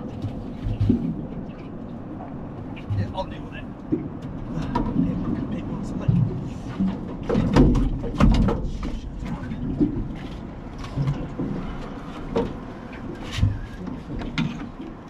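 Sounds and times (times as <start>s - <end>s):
fishing gear knocking in boat: 6.0s - 15.0s.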